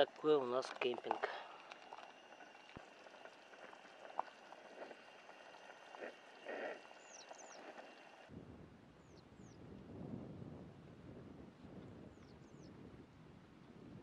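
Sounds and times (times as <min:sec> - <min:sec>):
soup bubbling: 0:00.0 - 0:08.3
bird chirping: 0:02.1 - 0:08.2.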